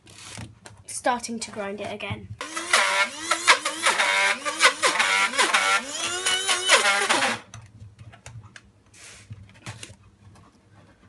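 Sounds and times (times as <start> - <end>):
electric coffee grinder labouring: 2.4 - 7.5.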